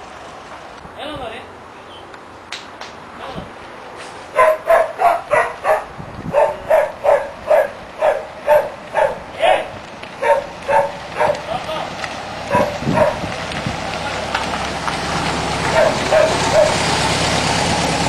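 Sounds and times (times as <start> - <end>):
dog barking: 4.3 - 11.5, 12.5 - 13.3, 15.7 - 16.8.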